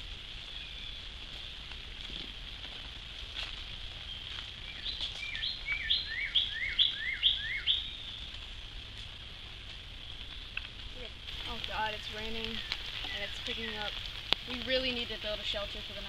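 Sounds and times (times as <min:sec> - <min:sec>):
songbird singing: 0:00.3 - 0:01.7, 0:03.9 - 0:08.8, 0:09.9 - 0:16.0
insects droning: 0:03.0 - 0:16.0.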